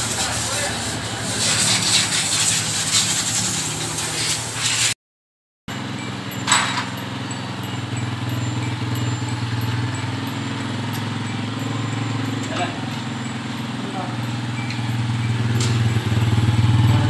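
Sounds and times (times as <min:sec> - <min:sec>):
hissing workshop noise: 0:00.0 - 0:05.0, 0:05.7 - 0:17.0
faint high ticking: 0:05.7 - 0:17.0
motorcycle engine idling: 0:05.7 - 0:17.0.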